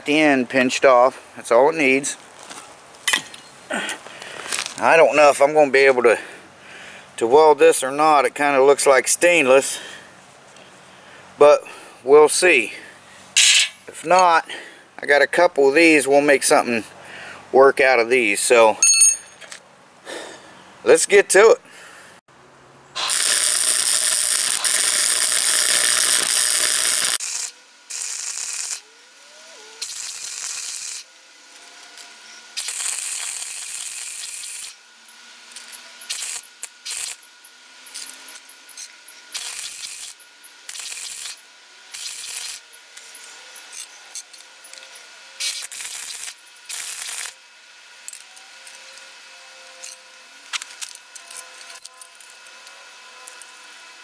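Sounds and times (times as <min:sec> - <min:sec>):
arc welder hissing and crackling: 0:13.4 - 0:14.0, 0:23.0 - 0:47.8.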